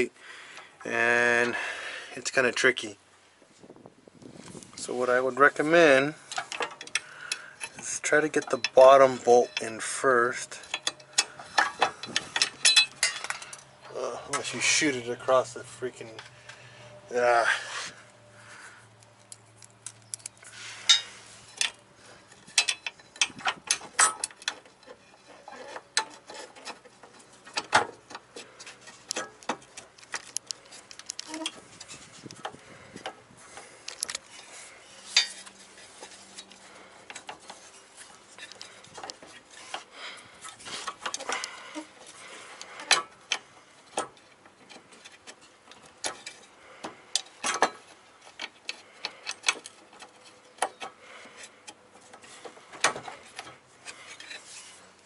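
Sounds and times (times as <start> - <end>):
small metal parts clicking and tapping: 6.3 - 13.7, 19.0 - 34.5, 38.4 - 54.4.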